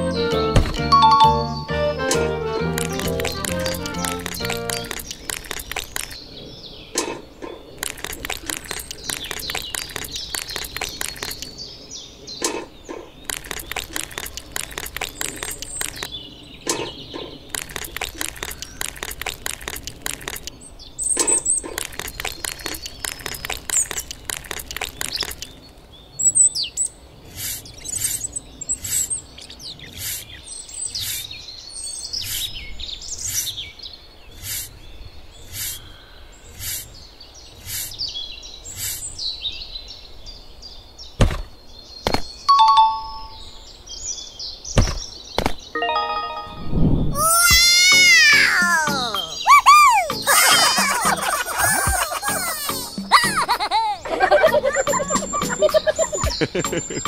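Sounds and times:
birds chirping: 0.0 - 57.0
sharp clicks and taps: 2.1 - 6.2, 7.8 - 11.5, 13.3 - 16.1, 17.5 - 20.6, 21.2 - 25.5, 54.8 - 57.0
regular ticking: 2.6 - 6.2, 7.8 - 11.5, 13.3 - 16.1, 17.5 - 20.5.

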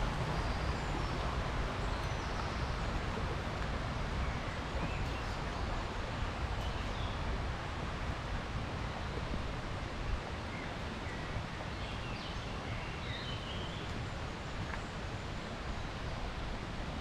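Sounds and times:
low rushing outdoor noise: 0.0 - 17.0.

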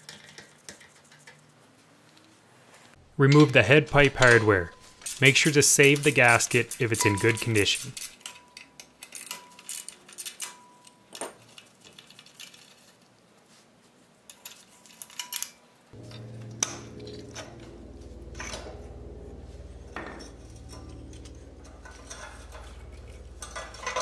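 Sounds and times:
metal tools clinking on nuts: 3.2 - 11.2, 14.4 - 24.0
steady low hum: 16.0 - 24.0.

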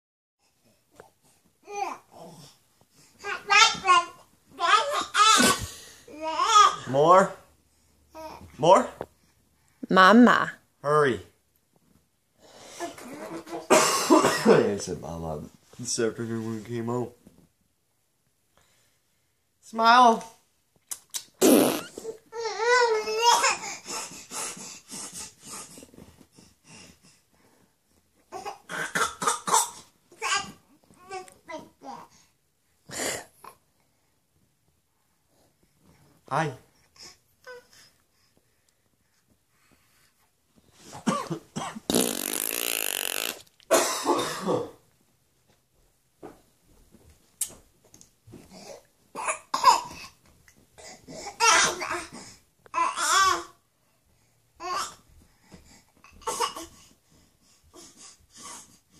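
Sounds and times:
baby babbling: 3.2 - 6.8.

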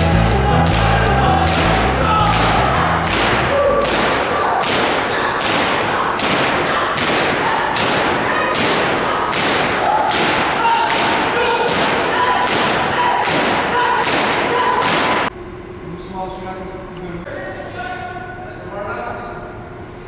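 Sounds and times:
organ music: 0.0 - 4.2.

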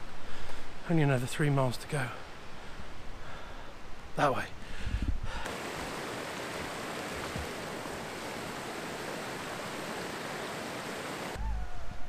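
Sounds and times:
stream rushing over rocks: 5.4 - 11.4.

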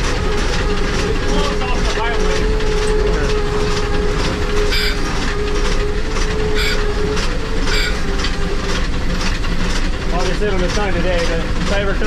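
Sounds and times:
steady humming tone: 0.0 - 9.6
steam locomotive rumble and rattle: 0.0 - 12.0
short high squeals: 4.5 - 8.7.

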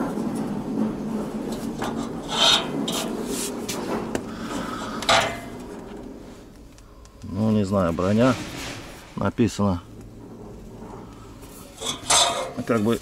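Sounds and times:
scraping swishes: 1.0 - 4.1.

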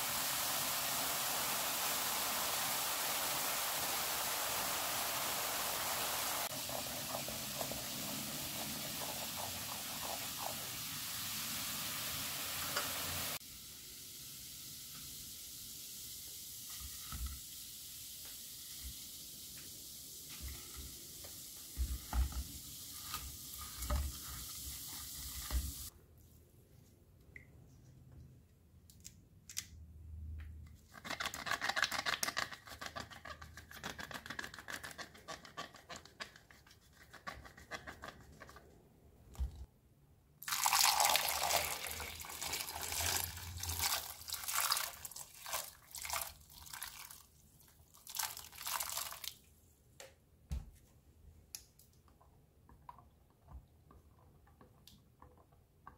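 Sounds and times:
liquid fizzing in a bowl: 0.0 - 19.4, 40.4 - 49.5
hands scrubbing wet apples: 6.4 - 11.0.

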